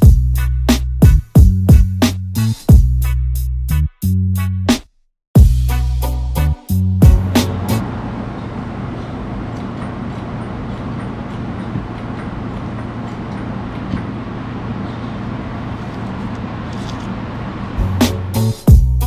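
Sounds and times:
constant low hum: 7.0s - 18.9s.

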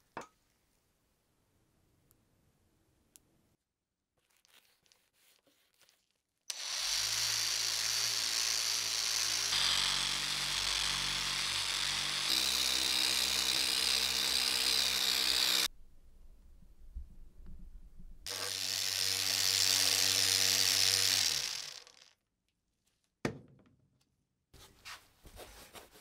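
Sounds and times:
rotary polisher whirring: 6.5s - 15.7s, 18.3s - 22.1s.

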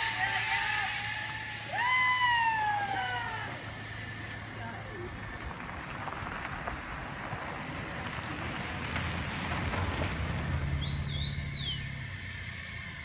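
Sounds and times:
car engine hum: 0.0s - 13.0s
tyres on gravel: 0.0s - 13.0s
high warbling whistle tone: 10.7s - 12.2s.

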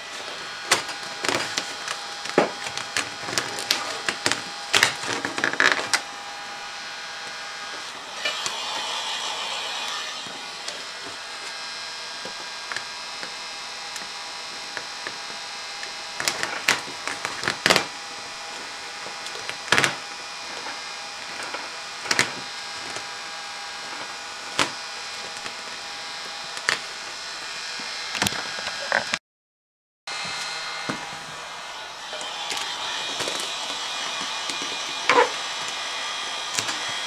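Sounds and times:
squeegee scraping and squeaking: 32.0s - 37.0s.

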